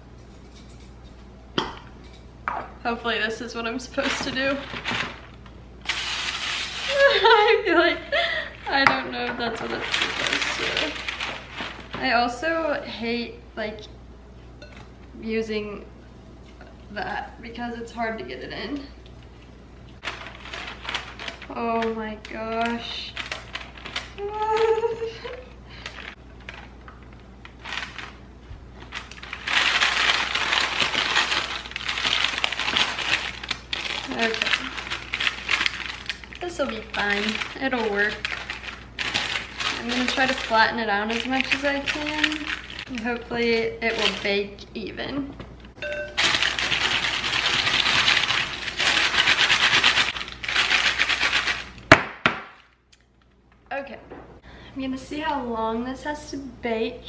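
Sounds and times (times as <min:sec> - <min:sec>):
parchment paper crinkling: 0:03.9 - 0:05.5, 0:09.4 - 0:12.2, 0:20.0 - 0:44.6, 0:46.2 - 0:51.8.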